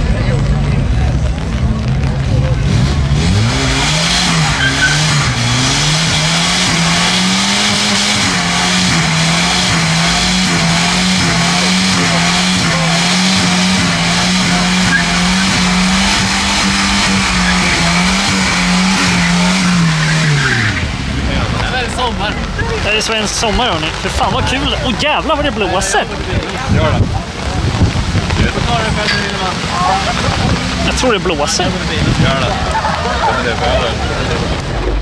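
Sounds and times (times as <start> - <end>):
car engine at high revs: 0.0 - 35.0
tyres squealing: 3.3 - 26.0.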